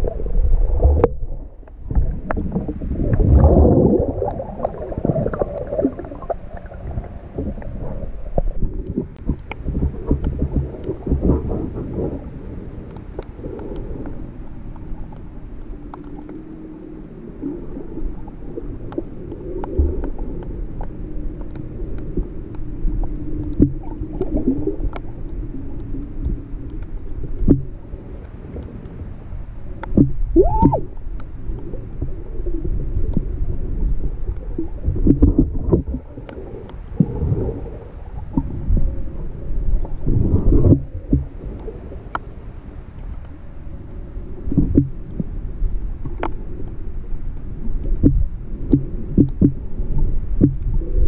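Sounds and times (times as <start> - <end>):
underwater water rumbling: 0.0 - 51.0
underwater knocks and clicks: 0.8 - 12.1, 17.7 - 27.8, 29.8 - 32.2, 34.3 - 37.4, 38.3 - 42.2, 44.5 - 45.4, 47.8 - 49.6, 50.4 - 50.8.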